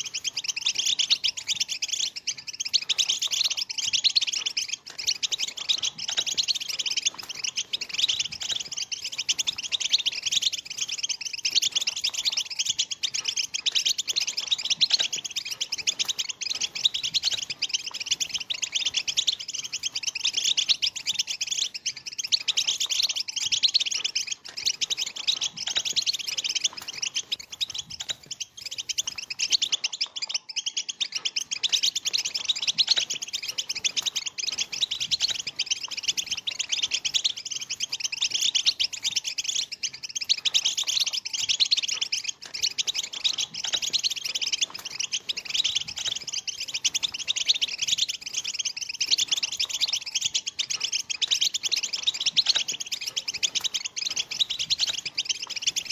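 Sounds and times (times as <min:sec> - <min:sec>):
flock of finches twittering: 0:00.0 - 0:55.9.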